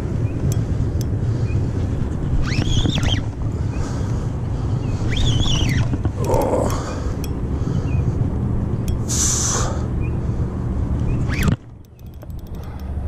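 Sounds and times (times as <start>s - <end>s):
wind rumble on microphone: 0.0s - 13.0s
bird call: 5.0s - 5.9s.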